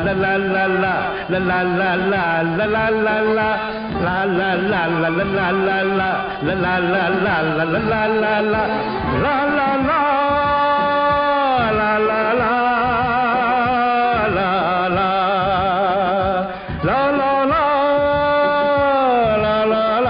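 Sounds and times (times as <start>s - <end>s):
old film song: 0.0s - 20.0s.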